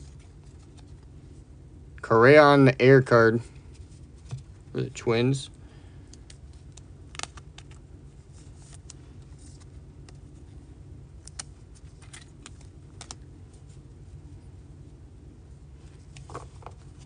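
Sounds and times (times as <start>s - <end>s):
low steady hum: 0.0s - 17.0s
plastic cards clicking and rustling: 6.1s - 7.8s, 8.4s - 10.4s, 11.2s - 13.2s, 16.1s - 17.0s.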